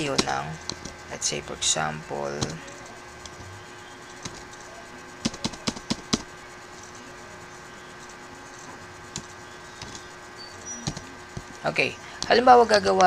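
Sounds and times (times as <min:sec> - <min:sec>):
faint steady hum: 0:00.0 - 0:13.0
computer keyboard keystrokes: 0:04.2 - 0:06.2.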